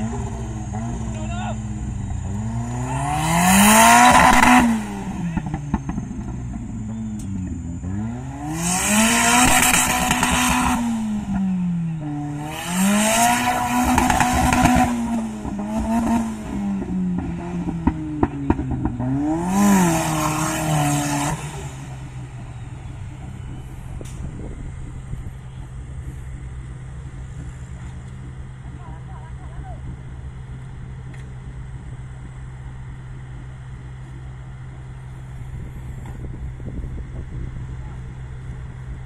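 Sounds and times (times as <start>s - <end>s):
off-road engine revving: 0.0s - 39.0s.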